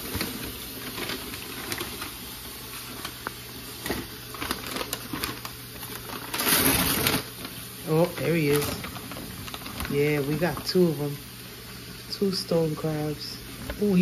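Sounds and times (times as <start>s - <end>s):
paper bag crinkling and rustling: 0.0s - 11.2s.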